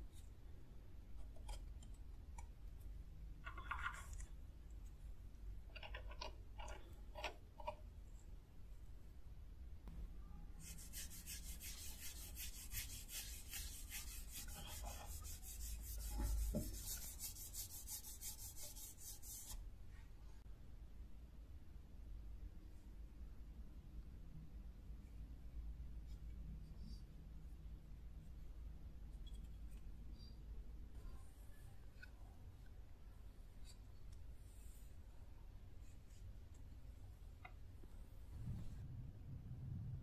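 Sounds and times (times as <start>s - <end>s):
handling scrapes and clicks: 5.7s - 7.8s
cloth rubbing wooden handle: 10.6s - 19.6s.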